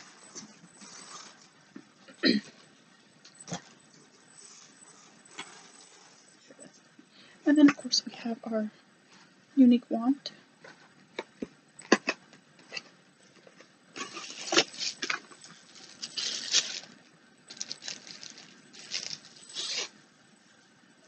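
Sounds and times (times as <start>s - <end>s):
bubble wrap rustling: 0.0s - 1.5s, 14.0s - 19.9s.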